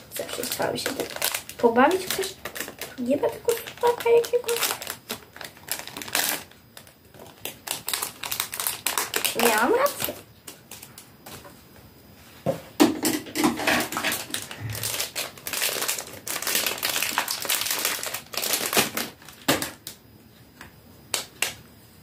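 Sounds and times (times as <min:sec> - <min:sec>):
foil wrapper crinkling: 0:00.0 - 0:11.4, 0:13.4 - 0:20.0.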